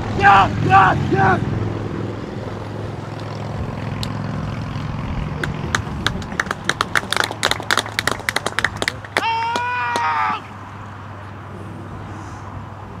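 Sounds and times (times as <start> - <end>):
spectators clapping: 5.4 - 10.2.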